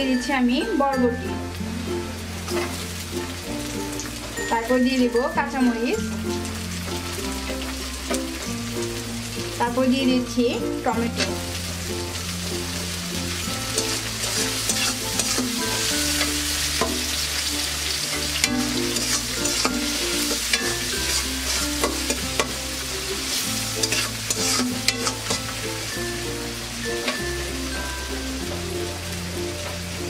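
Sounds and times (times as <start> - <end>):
vegetables sizzling in hot oil: 0.0 - 30.0
spatula scraping a pan: 13.7 - 25.9.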